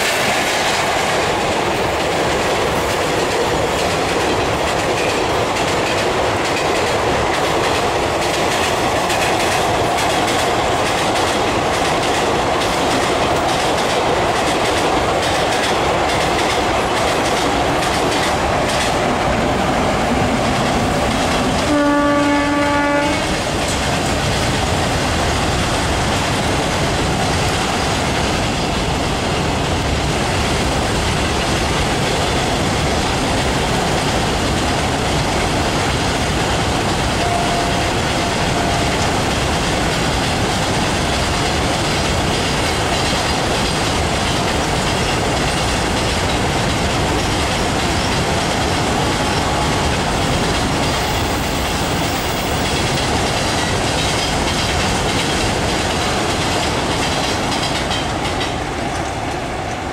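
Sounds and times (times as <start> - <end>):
train wheels clattering over rail joints: 0.0 - 59.9
locomotive horn blast: 21.6 - 23.3, 37.2 - 38.9.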